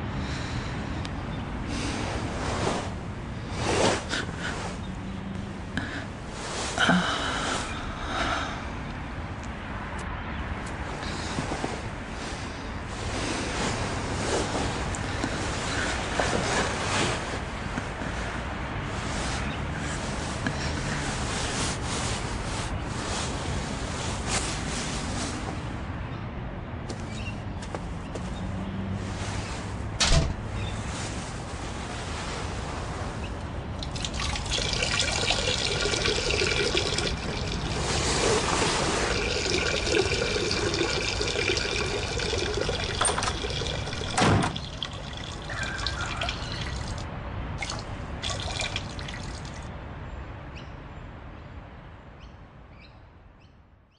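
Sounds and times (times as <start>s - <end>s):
urine splashing into toilet water: 33.8s - 47.0s, 47.6s - 49.6s.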